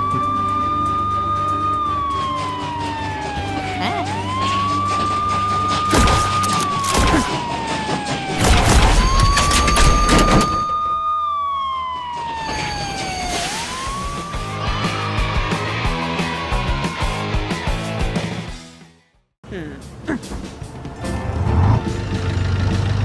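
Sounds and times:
police siren wailing: 0:00.0 - 0:16.6.

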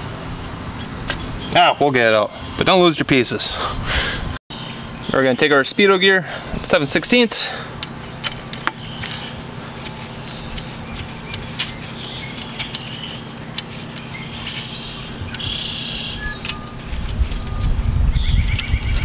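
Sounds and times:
birds chirping: 0:00.0 - 0:19.0
metal parts clinking: 0:15.3 - 0:17.6.

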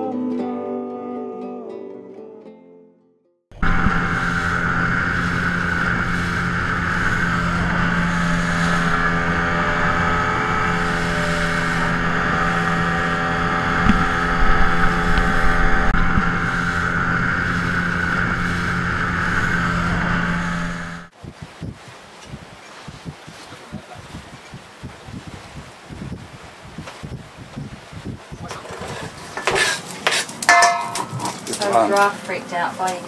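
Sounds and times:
outboard motor droning: 0:03.5 - 0:21.8.

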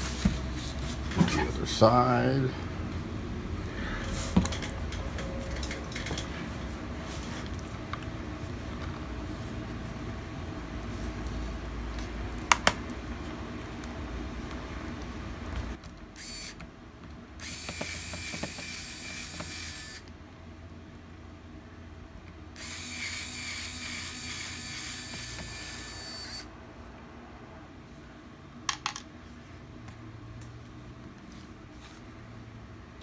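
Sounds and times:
electric screwdriver whirring: 0:16.2 - 0:16.6, 0:17.4 - 0:20.1, 0:22.6 - 0:26.5.

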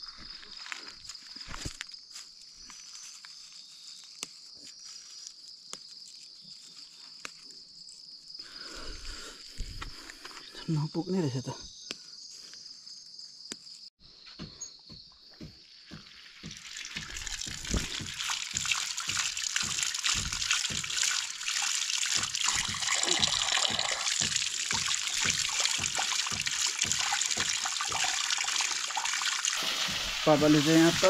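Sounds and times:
water pouring from a hose: 0:15.6 - 0:31.0
water splashing on concrete: 0:16.0 - 0:31.0.

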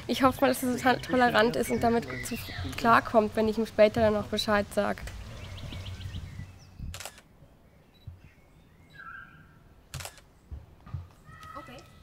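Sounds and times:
faint bird chirps: 0:05.2 - 0:09.6
camera shutter clicks: 0:06.9 - 0:07.3, 0:09.9 - 0:10.3.

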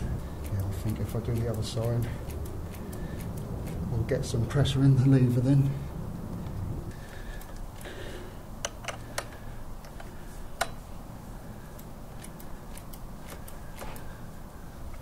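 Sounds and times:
low steady hum: 0:00.0 - 0:15.0
light clicks of hand tools: 0:00.4 - 0:03.8, 0:11.7 - 0:14.2.

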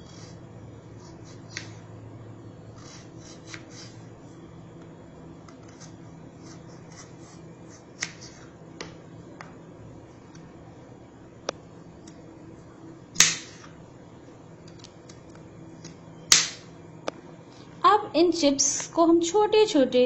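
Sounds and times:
low steady hum: 0:00.0 - 0:20.0
knife slicing potato: 0:02.8 - 0:04.0.

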